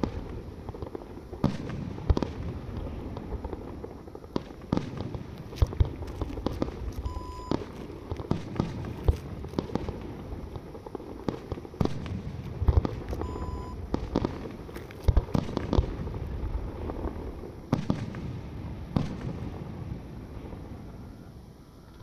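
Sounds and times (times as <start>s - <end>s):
firework shells bursting: 0.0s - 20.7s
low rumble and crackle: 0.0s - 22.0s
electronic beep: 7.0s - 7.6s, 13.2s - 13.8s.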